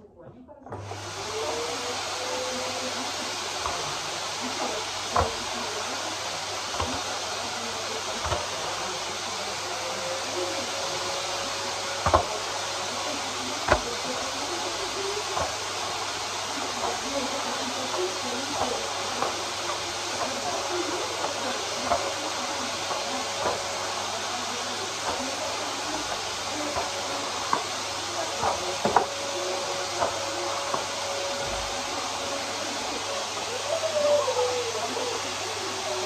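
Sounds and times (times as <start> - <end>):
vacuum cleaner on carpet: 0.6 - 36.0
vacuum wand knocking: 0.7 - 33.5.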